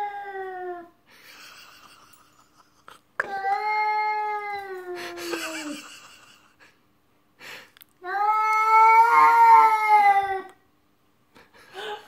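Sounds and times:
cat yowling: 0:08.0 - 0:10.5.

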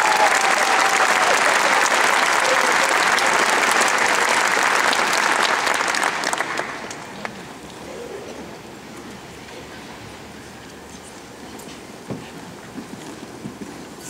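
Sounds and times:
scattered claps: 0:00.0 - 0:07.4
audience applauding: 0:00.0 - 0:07.6.

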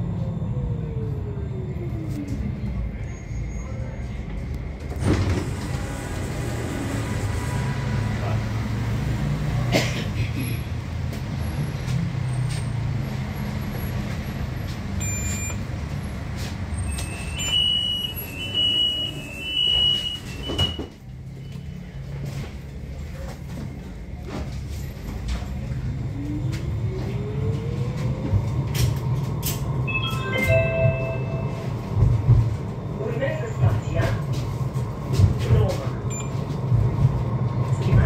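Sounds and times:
tram rumbling: 0:00.0 - 0:38.0
short high beeps: 0:29.9 - 0:31.8.

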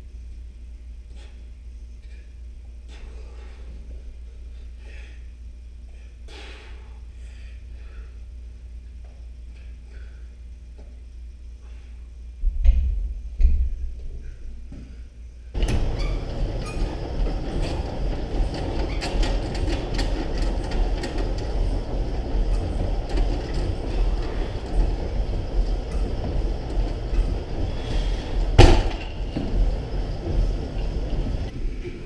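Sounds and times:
exercise machine rumbling clatter: 0:15.6 - 0:32.0.

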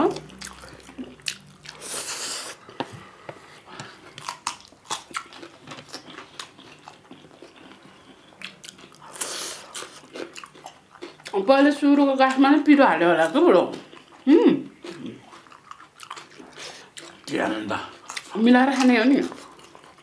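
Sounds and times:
wet chewing with mouth clicks: 0:00.1 - 0:02.6, 0:03.8 - 0:11.4, 0:13.8 - 0:17.3, 0:17.9 - 0:20.0.

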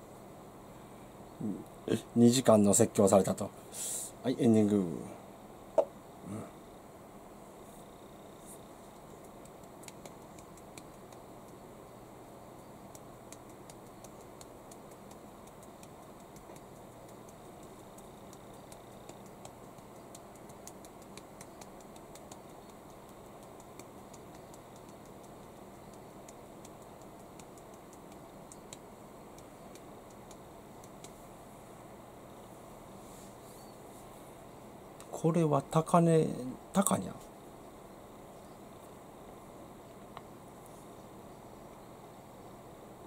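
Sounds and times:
steady low hum and hiss: 0:00.0 - 0:43.0
faint small clicks and ticks: 0:08.9 - 0:11.6, 0:12.9 - 0:31.2.

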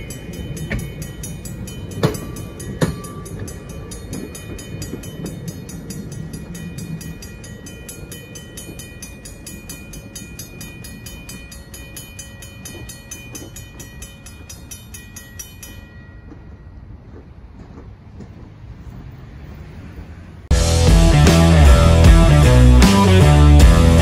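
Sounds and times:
railroad crossing bell ringing: 0:00.0 - 0:17.6
train rumbling: 0:00.0 - 0:24.0.

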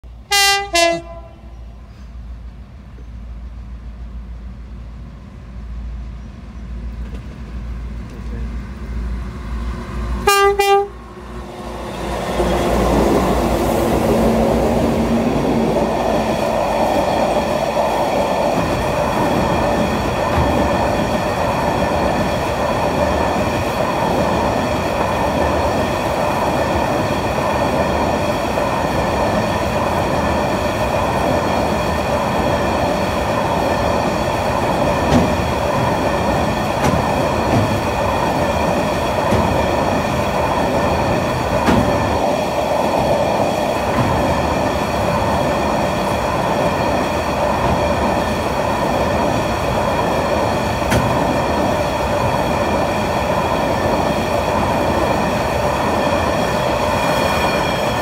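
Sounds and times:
wheels rumbling and clattering on rail: 0:00.0 - 0:58.0
train horn blasts: 0:00.3 - 0:01.5, 0:10.2 - 0:11.0
locomotive engine: 0:01.0 - 0:58.0.

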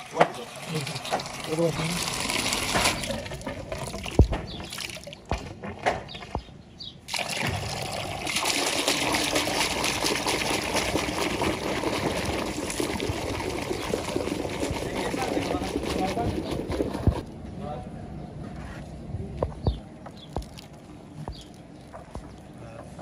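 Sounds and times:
water splashing into bucket: 0:00.0 - 0:05.4, 0:07.1 - 0:17.3
hand churning foamy water: 0:07.1 - 0:17.3.

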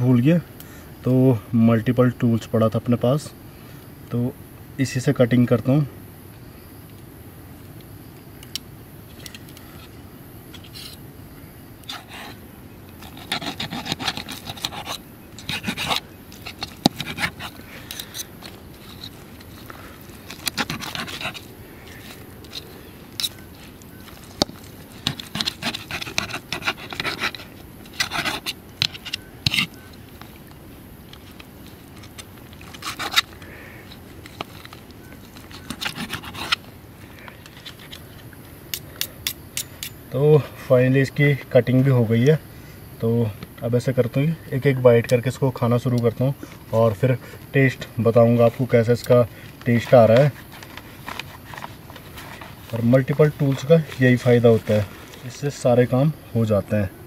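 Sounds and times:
blade sawing through crunchy food: 0:13.0 - 0:23.4, 0:24.2 - 0:29.8, 0:31.9 - 0:36.7.

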